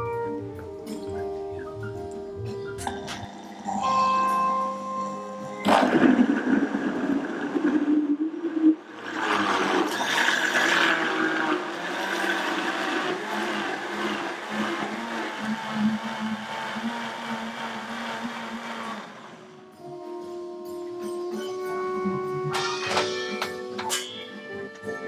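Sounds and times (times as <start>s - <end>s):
blender motor running: 9.0s - 19.5s.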